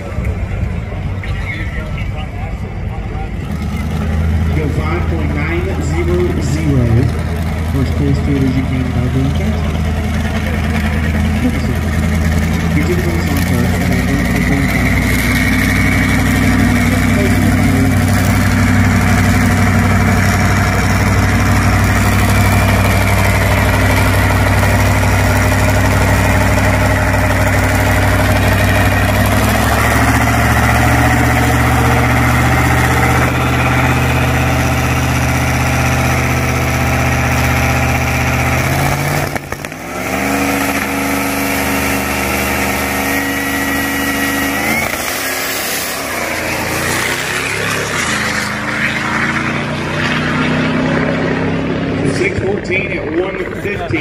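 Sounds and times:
pickup engine revving: 0.0 - 54.0.

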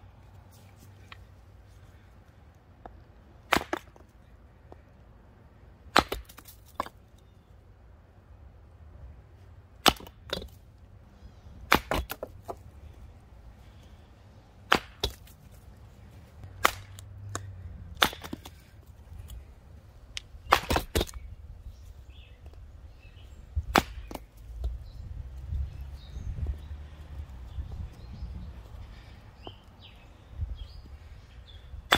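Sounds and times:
hatchet chopping wood: 2.8 - 4.1, 5.9 - 7.0, 9.8 - 10.6, 11.7 - 12.6, 14.7 - 15.4, 16.4 - 19.4, 20.2 - 21.3, 23.6 - 24.8.

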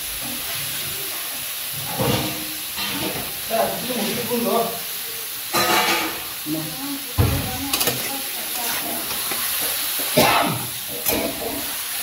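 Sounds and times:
frying sizzle: 0.0 - 12.0
metal spatula scraping pan: 7.7 - 10.2.

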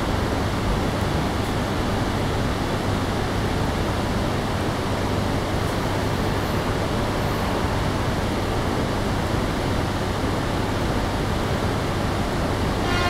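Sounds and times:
rushing noise: 12.8 - 13.0.

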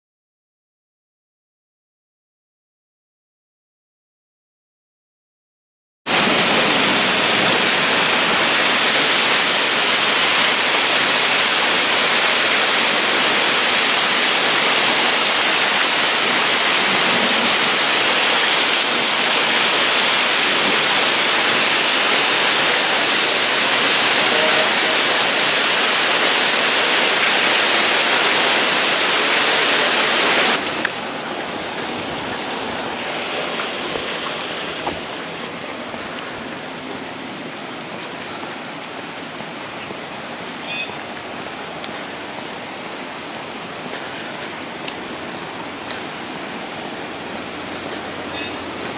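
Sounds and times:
torrential rain pouring: 6.1 - 48.9.

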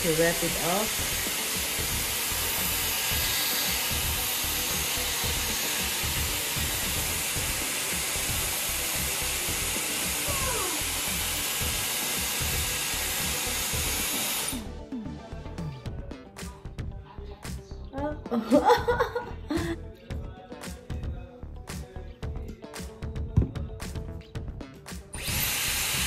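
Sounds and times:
hair styler fan blowing air: 0.0 - 14.7, 25.2 - 26.0.

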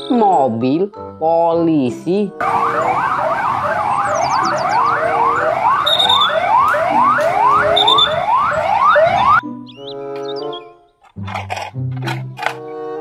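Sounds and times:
music: 0.0 - 3.0, 6.5 - 13.0
police car siren yelping: 2.4 - 9.4.

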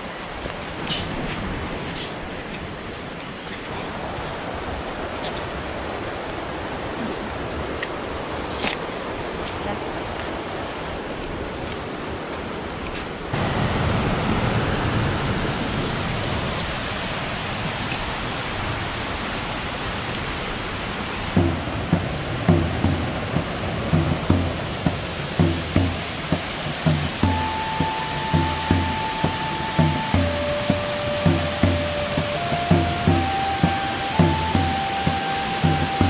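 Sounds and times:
river and waterfall rushing: 0.0 - 36.0.

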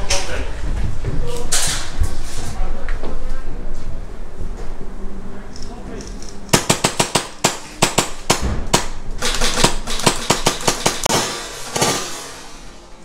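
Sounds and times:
airsoft gunfire cracks: 6.5 - 12.5.

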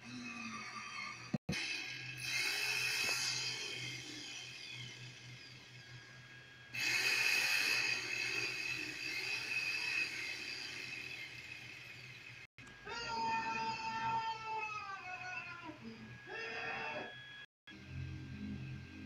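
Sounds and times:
power tool whining: 0.0 - 12.5.

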